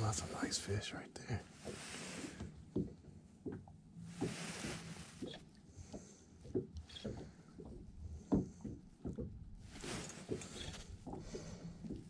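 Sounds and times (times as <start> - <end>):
waves slapping boat hull: 0.0 - 12.0.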